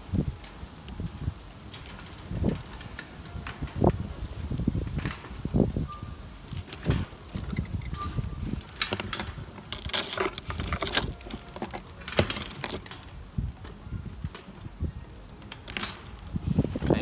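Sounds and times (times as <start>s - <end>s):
metal chain rattling against wood: 6.5s - 14.6s, 15.4s - 17.0s.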